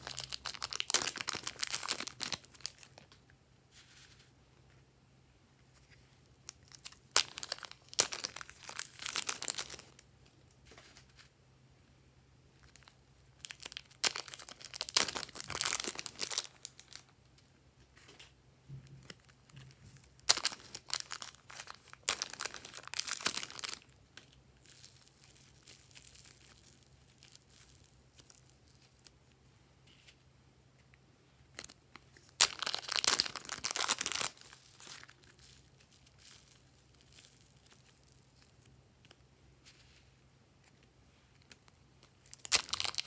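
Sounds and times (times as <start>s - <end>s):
plastic bags crinkling: 0.0s - 3.1s, 6.5s - 10.0s, 12.7s - 17.1s, 18.8s - 29.1s, 31.6s - 38.7s, 42.2s - 43.0s.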